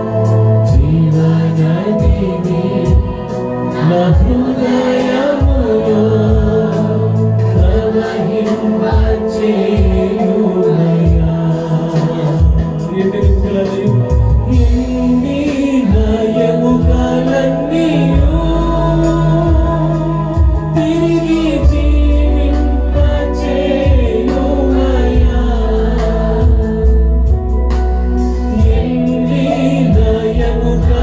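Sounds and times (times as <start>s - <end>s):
keyboard chords: 0.0s - 31.0s
low drum beats: 0.0s - 31.0s
man singing: 0.0s - 31.0s.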